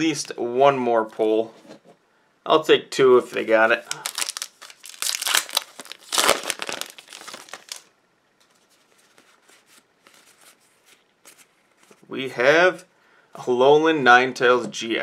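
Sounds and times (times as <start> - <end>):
foil wrapper crinkling and tearing: 3.9 - 7.9.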